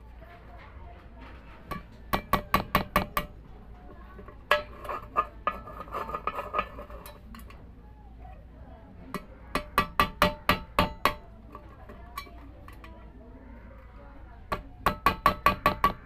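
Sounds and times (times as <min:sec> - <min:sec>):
hammer striking metal can: 0:01.7 - 0:03.3, 0:04.2 - 0:07.2, 0:09.6 - 0:11.3, 0:14.5 - 0:16.0
metal can clinking and rattling: 0:04.1 - 0:07.6.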